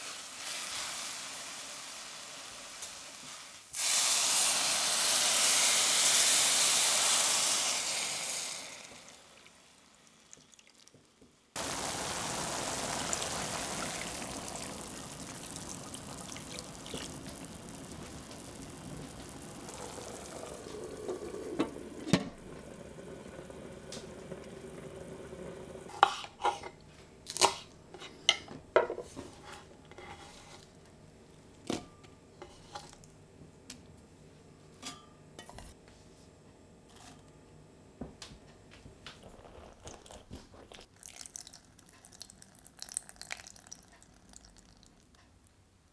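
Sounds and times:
water hissing in hot pan: 0.0 - 10.7, 11.6 - 26.1
pan simmering: 0.0 - 26.8, 39.0 - 45.5.

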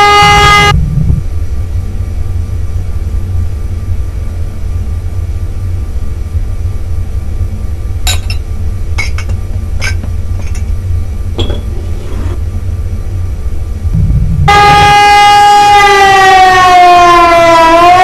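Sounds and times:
deep steady rumble: 0.0 - 18.0
glass and cutlery clinking: 8.1 - 8.4, 9.0 - 10.7, 11.4 - 11.8.

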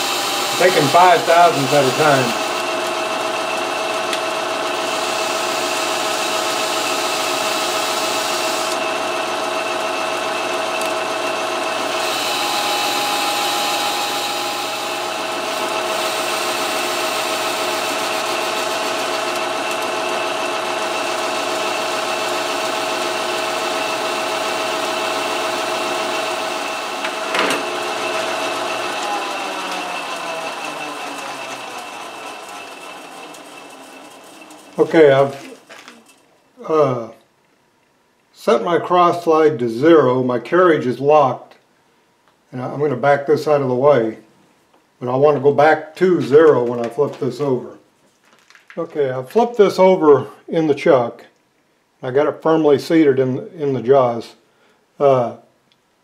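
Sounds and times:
cutting tool on spinning metal: 0.0 - 36.0
metal lathe whining: 0.0 - 36.2.

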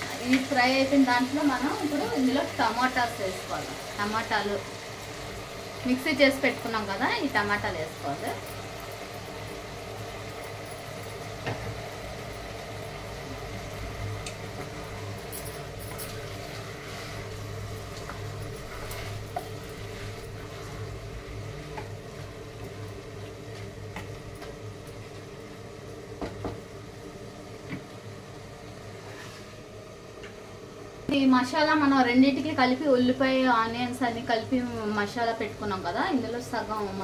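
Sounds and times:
mechanical hum: 0.0 - 37.0
spatula stirring in a pot: 15.6 - 25.2.

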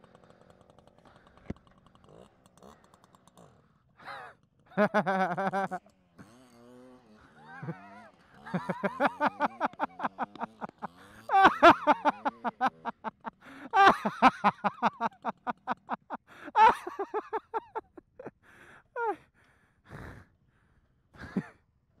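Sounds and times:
person laughing hard: 4.0 - 5.8, 7.3 - 19.3, 21.2 - 21.5.

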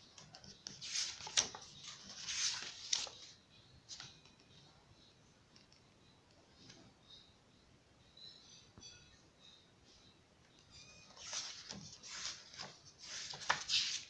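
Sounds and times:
book page turning: 0.6 - 4.1, 11.2 - 14.0.

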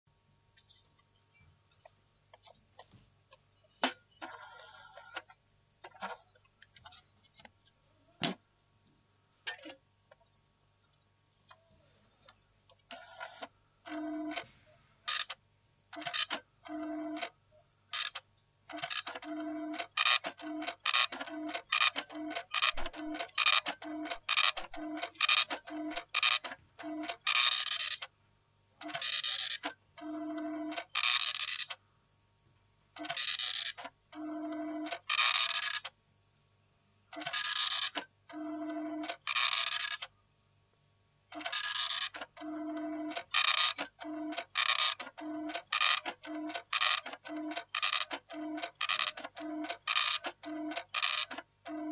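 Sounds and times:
electronic clicking bursts: 18.0 - 28.0, 41.4 - 51.9.

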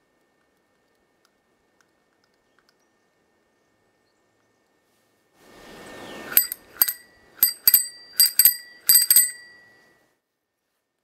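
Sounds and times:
bicycle bell dings: 6.3 - 10.0
bicycle bell whirring: 6.3 - 10.0.

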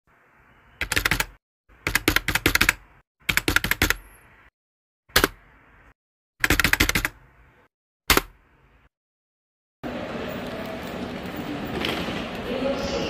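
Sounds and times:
rapid keystroke clicks: 0.8 - 4.0, 6.4 - 7.2.

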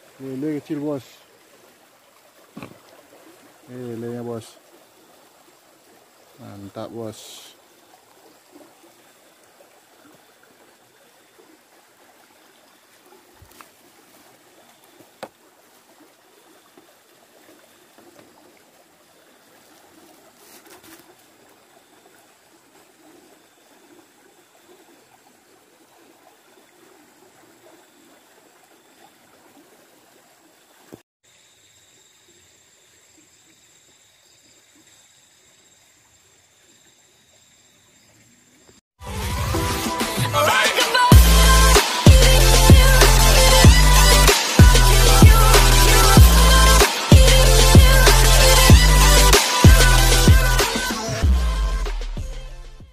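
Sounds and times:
faint trickling water: 0.0 - 31.0.

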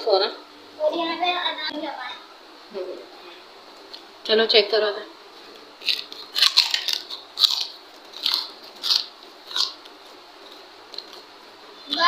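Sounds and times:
crisp snacks crunching: 5.8 - 11.3.

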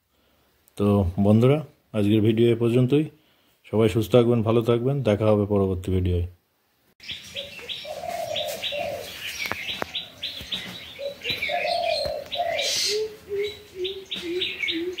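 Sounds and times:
birds chirping: 7.0 - 15.0
bird cooing: 7.3 - 15.0.

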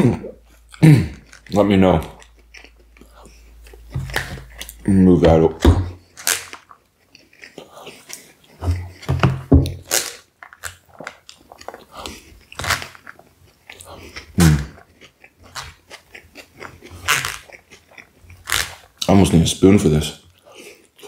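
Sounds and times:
low mouth sounds: 0.0 - 2.4, 14.0 - 14.8
chewing and mouth smacks: 0.5 - 4.9, 6.0 - 9.2, 9.8 - 19.1.

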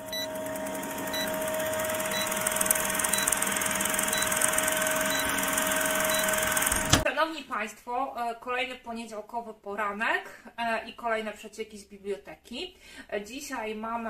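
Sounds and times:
film projector clatter: 0.0 - 7.0.

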